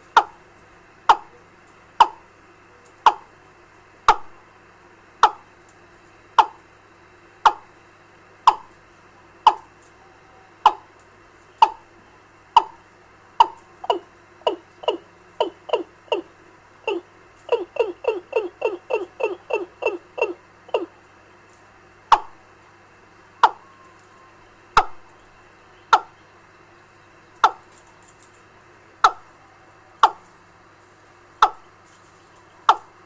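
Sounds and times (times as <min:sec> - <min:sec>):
faint steady hum: 0:00.0 - 0:33.0
recorded bird call from loudspeaker: 0:13.4 - 0:16.3, 0:16.9 - 0:20.9, 0:23.5 - 0:27.3.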